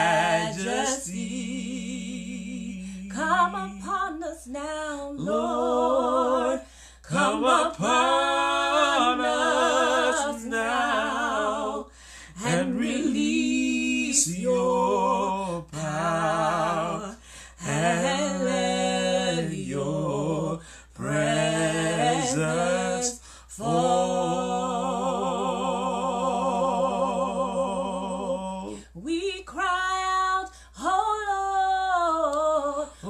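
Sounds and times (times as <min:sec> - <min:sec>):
woman singing: 0:00.4 - 0:07.9, 0:28.8 - 0:33.0.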